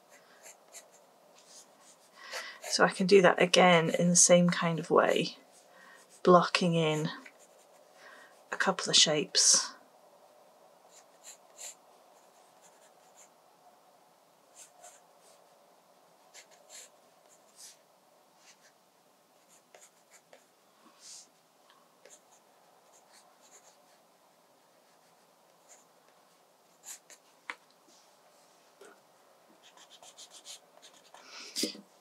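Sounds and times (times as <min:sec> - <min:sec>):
pencil scratching on paper: 0:00.1 - 0:02.8, 0:10.9 - 0:13.3, 0:14.5 - 0:15.4, 0:16.3 - 0:17.8, 0:19.4 - 0:21.3, 0:22.0 - 0:24.0, 0:24.8 - 0:25.8, 0:26.8 - 0:27.3, 0:29.6 - 0:31.7.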